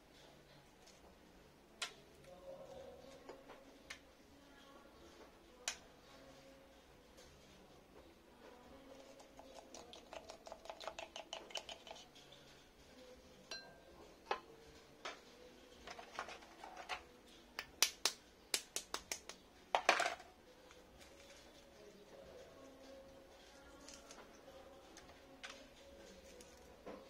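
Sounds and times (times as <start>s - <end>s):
eggshell being tapped: 9.2s - 12.0s.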